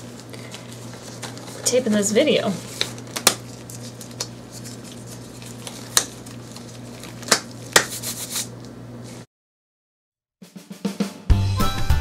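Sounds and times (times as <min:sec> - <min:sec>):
rubber gloves snapping: 0:02.8 - 0:04.4, 0:05.5 - 0:08.4.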